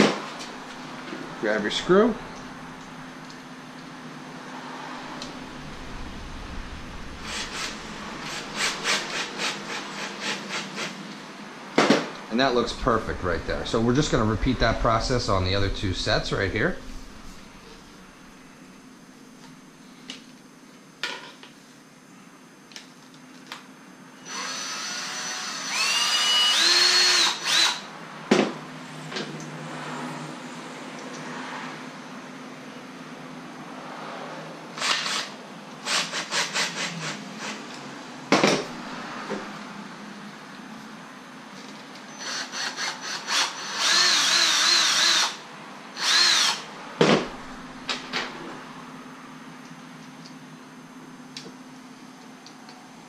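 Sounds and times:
cordless drill whining: 5.7s - 10.9s, 24.2s - 27.9s, 34.8s - 37.2s, 42.1s - 45.4s, 46.0s - 46.7s.

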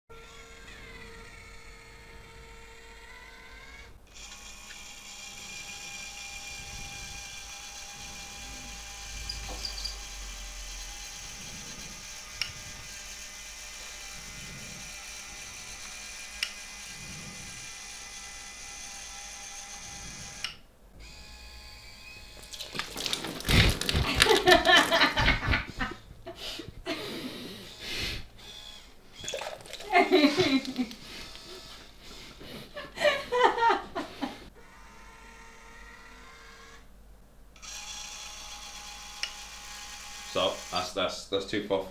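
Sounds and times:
small electric motors whirring: 0.1s - 25.2s, 27.5s - 32.4s, 34.2s - 36.9s, 37.6s - 41.1s
loud laughter: 24.0s - 27.1s, 29.8s - 31.0s, 32.8s - 34.4s.

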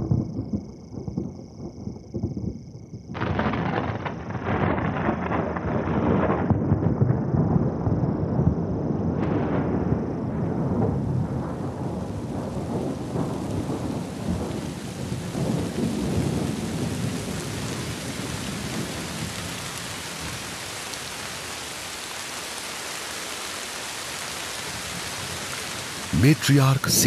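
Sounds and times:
deep rolling thunder: 3.2s - 14.6s, 15.3s - 17.1s
heavy rain: 11.2s - 27.0s.

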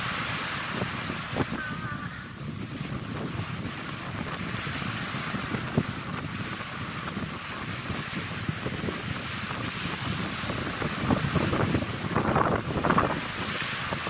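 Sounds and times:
small waves washing on beach: 0.0s - 14.0s
wind buffeting microphone: 0.0s - 14.0s.

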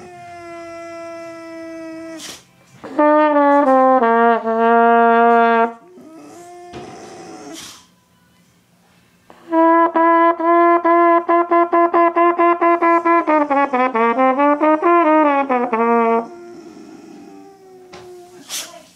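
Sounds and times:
trumpet playing repeated notes: 2.8s - 5.8s, 9.3s - 16.3s.

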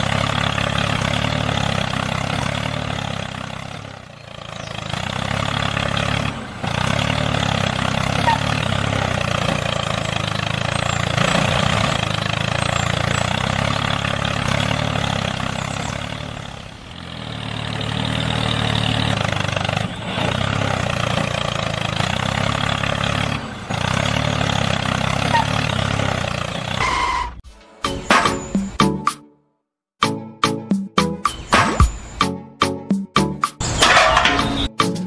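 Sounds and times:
tractor engine running: 0.0s - 29.3s, 30.0s - 35.0s.

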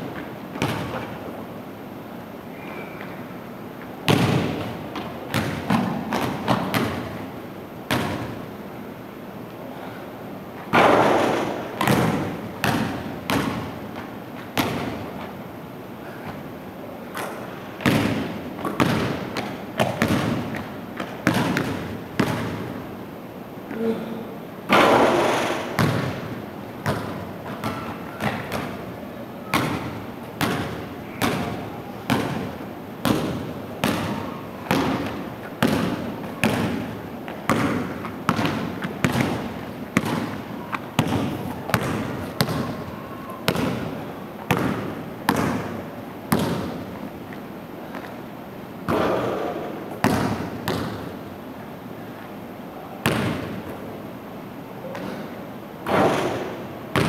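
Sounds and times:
basketball bouncing on wooden floor: 0.6s - 1.1s, 4.1s - 7.2s, 7.9s - 8.4s, 10.8s - 13.8s, 14.6s - 15.0s, 17.8s - 22.7s, 24.7s - 28.8s, 29.5s - 40.4s, 41.0s - 42.9s, 43.5s - 46.8s, 48.9s - 51.1s, 53.0s - 53.7s, 55.9s - 57.0s.

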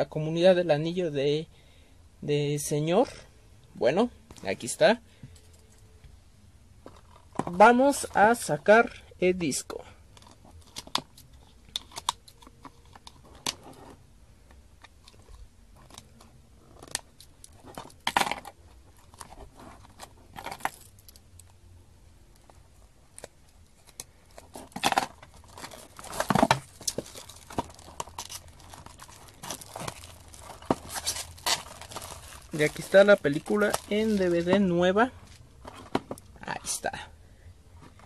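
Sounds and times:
plastic wrap crinkling and tearing: 23.8s - 35.4s.

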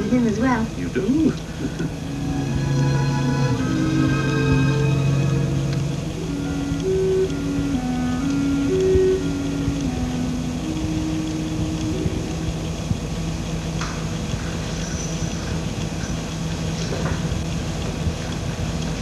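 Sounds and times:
film soundtrack hum and hiss: 0.0s - 19.0s
background music: 1.8s - 13.8s.

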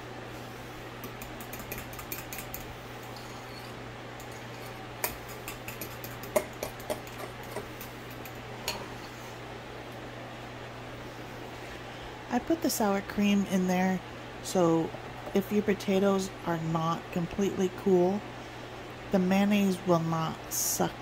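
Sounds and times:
metal spoon clinking in bowl: 1.1s - 8.8s.

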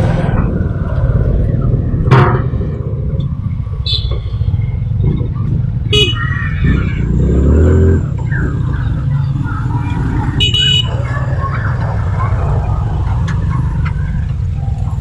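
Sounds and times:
wind rumble on microphone: 0.0s - 10.3s
street traffic: 0.0s - 15.0s
vehicle horn beep: 3.8s - 4.6s, 5.9s - 6.2s, 10.4s - 10.9s.

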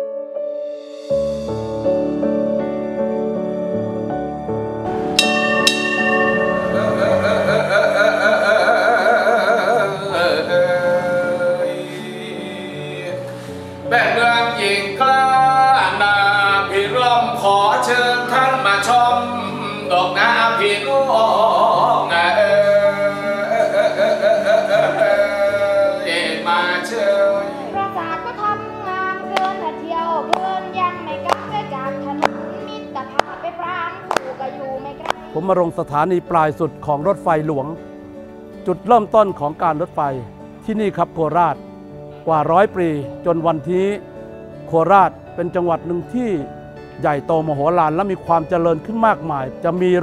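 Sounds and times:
brass bell strike: 5.2s - 8.0s
song with singing: 5.2s - 35.4s.

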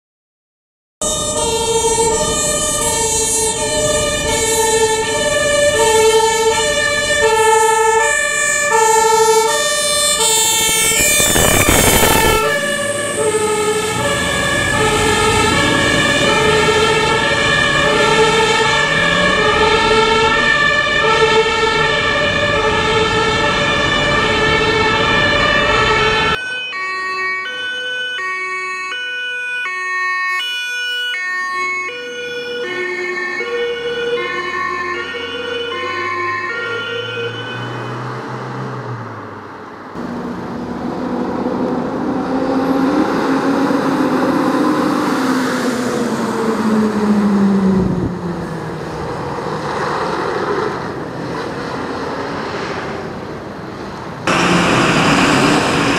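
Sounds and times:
fire engine two-tone sirens: 1.0s - 55.9s
loud rush of noise: 10.2s - 13.2s, 54.1s - 55.9s.

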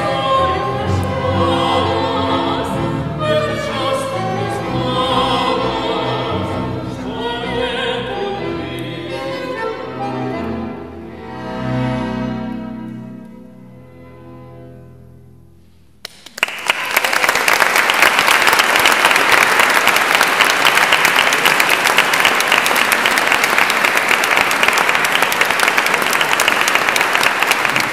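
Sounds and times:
audience applauding: 16.0s - 27.9s.

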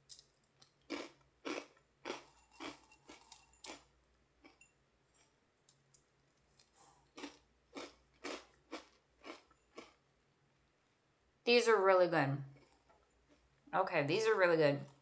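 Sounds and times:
cereal crunching while chewing: 0.1s - 4.6s, 6.5s - 10.0s.

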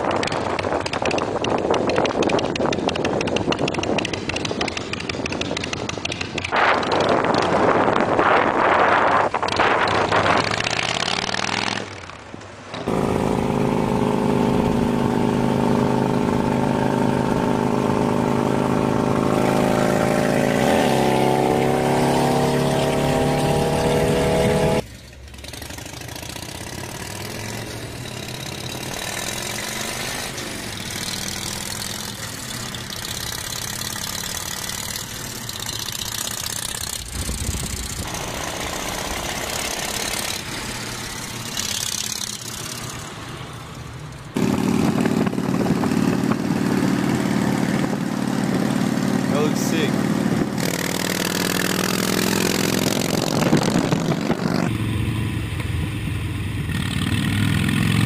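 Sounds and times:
motorcycle exhaust: 12.9s - 43.2s, 43.8s - 58.0s.

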